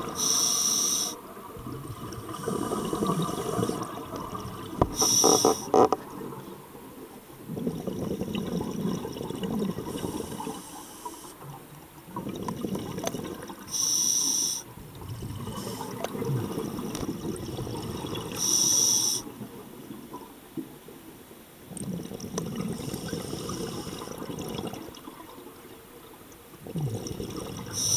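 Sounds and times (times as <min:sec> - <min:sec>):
regulator hissing inhalations: 0:00.1 - 0:01.2, 0:05.0 - 0:05.7, 0:13.7 - 0:14.7, 0:18.4 - 0:19.3
exhaled bubbles burbling underwater: 0:01.2 - 0:10.7, 0:11.4 - 0:13.8, 0:14.7 - 0:18.6, 0:21.7 - 0:27.9.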